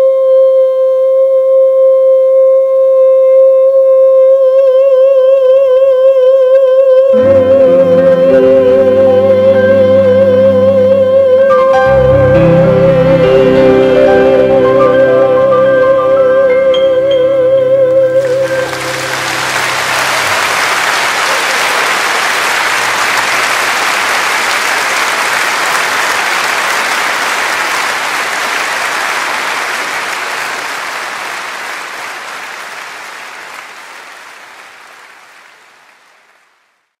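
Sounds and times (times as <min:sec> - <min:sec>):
audience applauding: 0:18.2 - 0:36.7.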